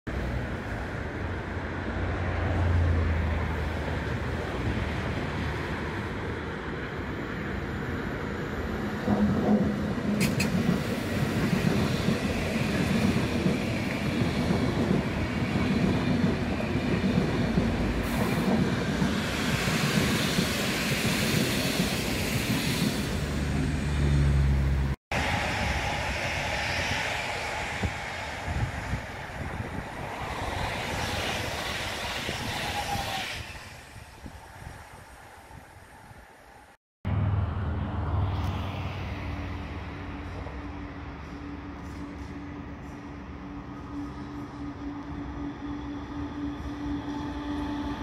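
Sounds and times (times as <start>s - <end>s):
electric train running past: 0.1s - 48.0s
train passing at speed: 0.1s - 48.0s.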